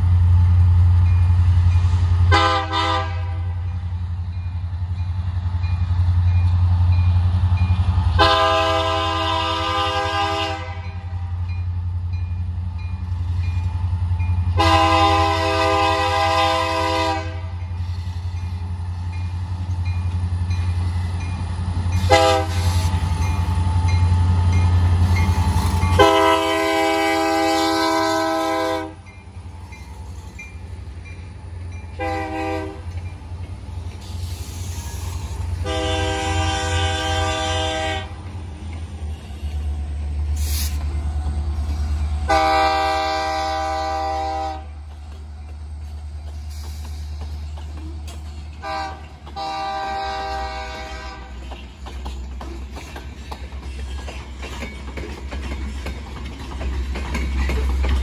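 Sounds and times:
diesel engines rumbling: 0.0s - 58.0s
locomotive air horn: 2.3s - 3.7s, 8.2s - 11.2s, 14.6s - 17.6s, 22.0s - 23.0s, 25.9s - 29.0s, 32.0s - 32.9s, 34.6s - 38.2s, 42.2s - 44.8s, 48.6s - 51.4s.

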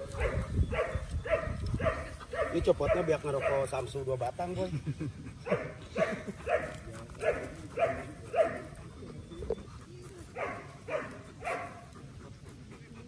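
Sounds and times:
dog panting hard: 4.6s - 13.0s.

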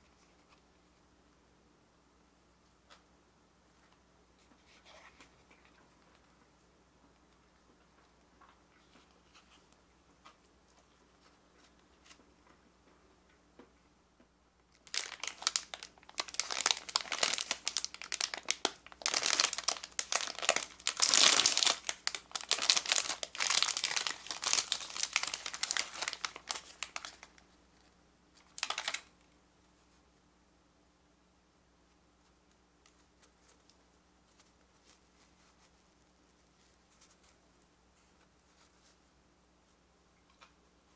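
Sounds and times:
plastic wrapper crinkling: 14.7s - 27.4s, 28.4s - 29.1s.

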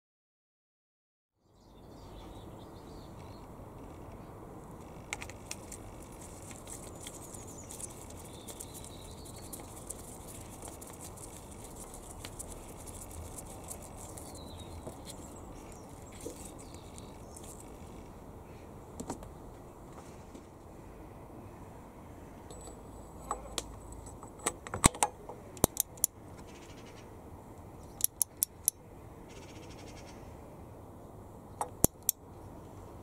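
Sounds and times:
gloved hands clicking and rubbing: 5.1s - 17.8s
faint bird chirps: 29.3s - 30.3s.

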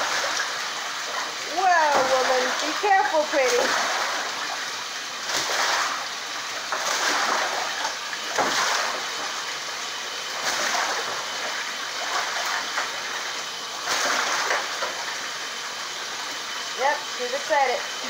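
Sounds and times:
goose splashing in water: 5.2s - 6.1s, 6.7s - 9.4s, 10.4s - 12.8s, 13.8s - 15.0s.

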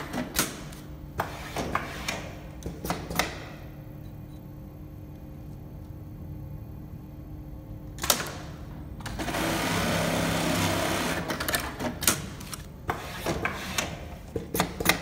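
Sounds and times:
sewing machine fast stitching: 9.2s - 11.3s.

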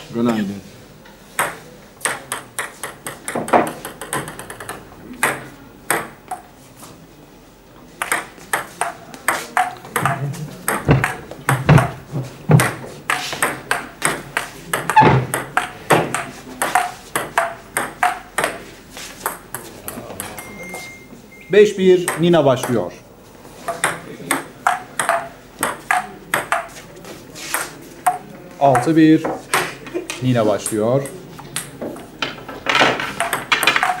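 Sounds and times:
ping pong ball hitting paddles: 1.3s - 6.5s, 8.0s - 20.8s, 21.9s - 23.0s, 23.6s - 34.0s
ping pong ball bouncing on table: 1.4s - 6.5s, 8.0s - 18.6s, 19.2s - 20.4s, 22.0s - 22.9s, 23.7s - 26.7s, 27.5s - 29.7s, 30.6s - 34.0s.

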